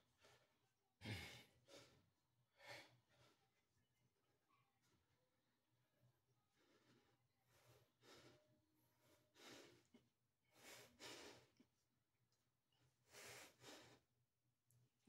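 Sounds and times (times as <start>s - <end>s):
man breathing heavily: 1.0s - 2.0s, 6.5s - 11.6s, 13.0s - 14.0s.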